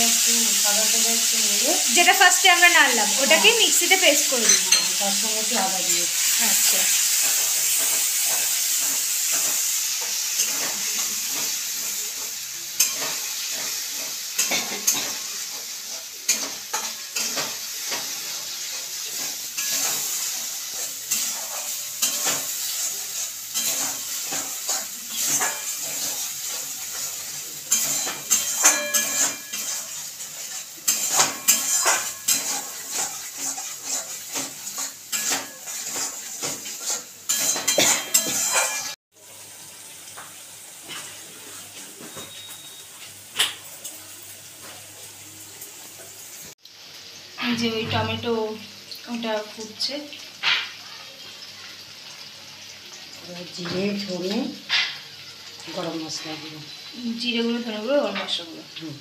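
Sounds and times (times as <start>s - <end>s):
paste sizzling in oil: 0.0s - 59.0s
metal spatula scraping pan: 7.1s - 39.0s.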